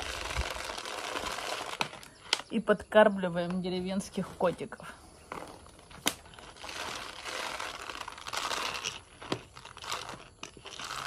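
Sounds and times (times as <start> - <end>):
plastic sack rustling: 0.0 - 2.4, 5.3 - 11.0.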